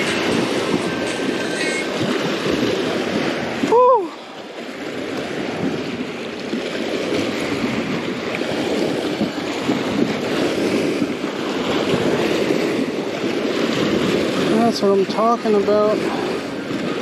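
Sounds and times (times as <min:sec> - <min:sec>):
waves washing against shore: 0:00.0 - 0:17.0
wind buffeting microphone: 0:00.0 - 0:17.0.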